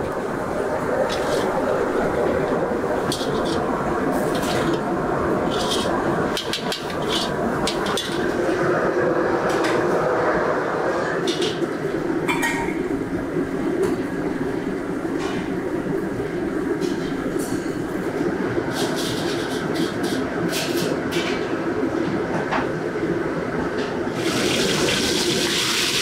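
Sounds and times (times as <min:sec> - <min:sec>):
kitchen steady roar: 0:00.0 - 0:26.0
dishes and utensils clinking: 0:05.4 - 0:08.3, 0:11.2 - 0:12.9.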